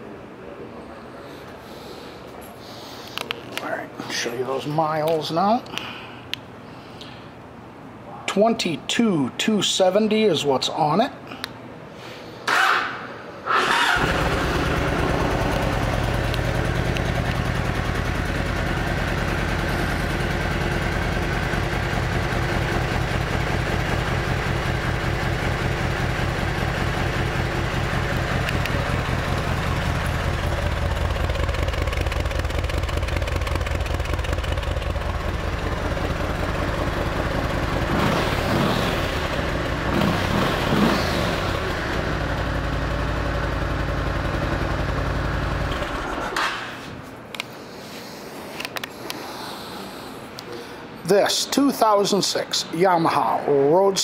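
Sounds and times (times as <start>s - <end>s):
motorcycle engine idling and revving: 13.6s - 46.7s.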